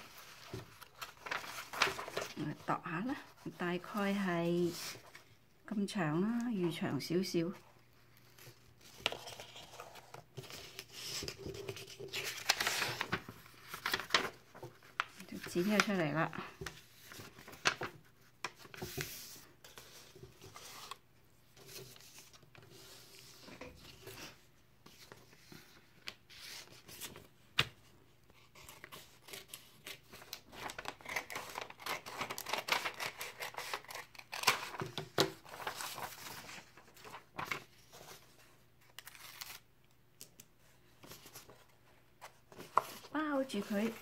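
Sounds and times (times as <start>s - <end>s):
paper rustling: 0.0s - 2.6s, 8.4s - 27.8s, 28.4s - 44.0s
scissors snipping paper: 30.9s - 34.6s.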